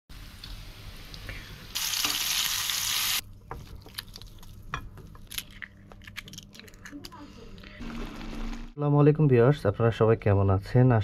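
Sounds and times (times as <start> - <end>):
fritters sizzling in hot oil: 0.1 - 3.2.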